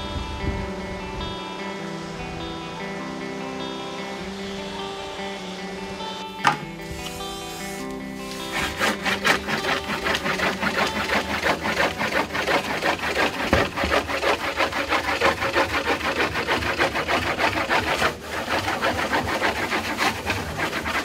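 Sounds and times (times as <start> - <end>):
hands rubbing paper on wood: 6.8 - 21.0.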